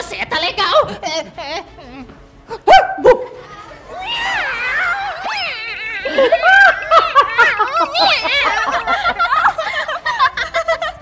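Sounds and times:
young women laughing: 0:04.2 - 0:11.0.

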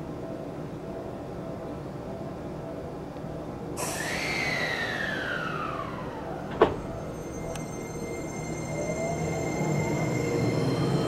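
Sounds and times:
faint high whine: 0:00.0 - 0:11.0
train door motor whine: 0:03.8 - 0:11.0
train doors thudding shut: 0:06.4 - 0:07.1.

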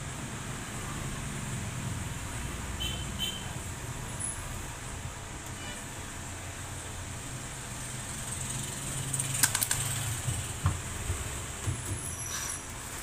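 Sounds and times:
sharp clicks of parts: 0:09.2 - 0:10.5.

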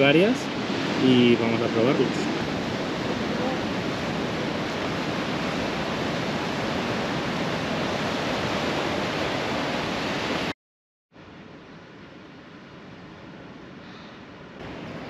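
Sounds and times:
surf breaking on rocky shore: 0:00.0 - 0:10.5.

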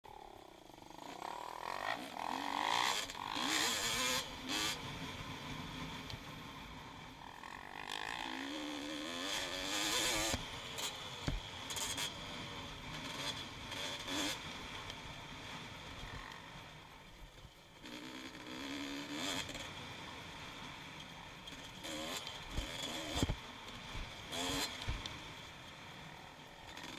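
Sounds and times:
dirt bike engine revving: 0:00.2 - 0:06.0, 0:07.2 - 0:14.8, 0:17.8 - 0:20.5, 0:21.4 - 0:25.4.

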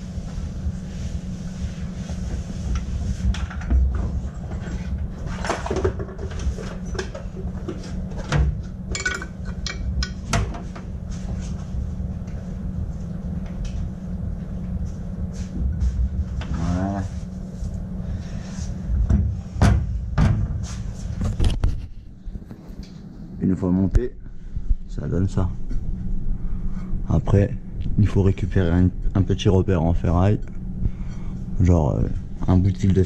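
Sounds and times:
low workshop hum: 0:00.0 - 0:33.0.

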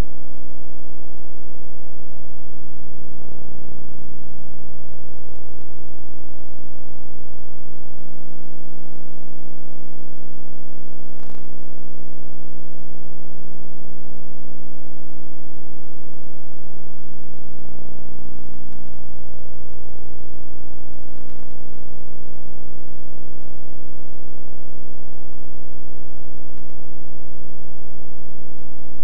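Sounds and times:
loud hum with overtones: 0:00.0 - 0:29.0.

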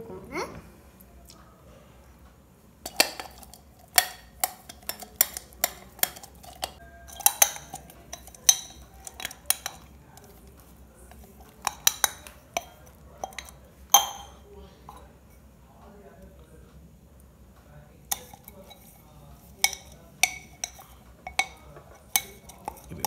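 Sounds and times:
steel tumblers clinking: 0:02.8 - 0:15.1, 0:18.1 - 0:23.0.

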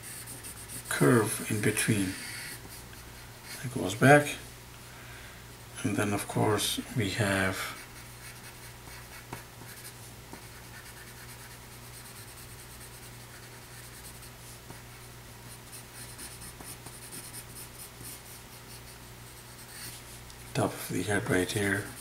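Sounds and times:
pencil scratching on paper: 0:00.0 - 0:02.8, 0:07.7 - 0:14.8, 0:15.6 - 0:20.1
steady low hum: 0:00.0 - 0:22.0.

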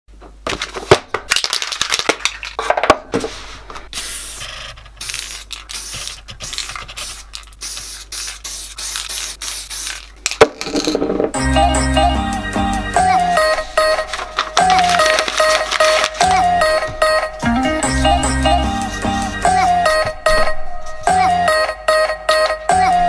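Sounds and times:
paper rustling: 0:00.5 - 0:07.6, 0:13.5 - 0:17.0
spray paint can hissing: 0:03.9 - 0:10.4.

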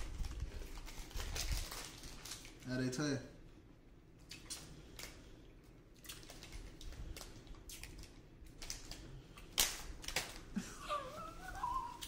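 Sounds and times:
plastic wrapper crinkling: 0:00.0 - 0:03.0, 0:06.0 - 0:10.6.

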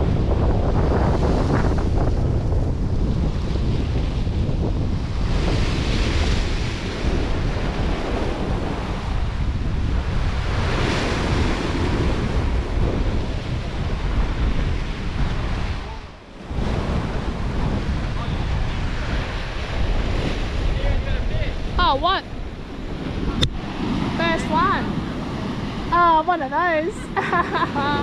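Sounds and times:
waves washing: 0:00.0 - 0:28.0
wind buffeting microphone: 0:00.0 - 0:28.0.

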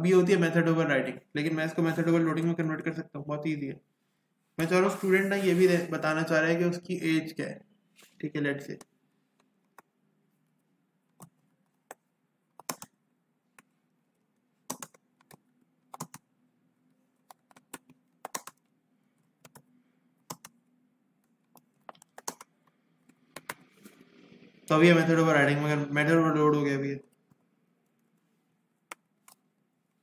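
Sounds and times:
computer keyboard typing clicks: 0:12.6 - 0:13.0, 0:14.7 - 0:16.3, 0:17.3 - 0:18.7, 0:19.4 - 0:19.7, 0:20.3 - 0:20.6, 0:21.5 - 0:22.6.

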